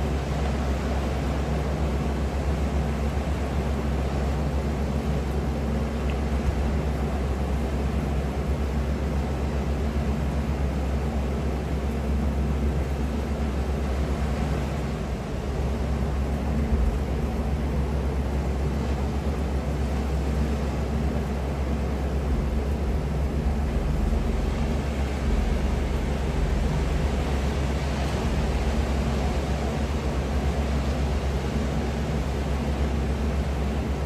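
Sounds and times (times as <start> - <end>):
ocean surf: 0.0 - 34.0
wind rumble: 12.6 - 34.0.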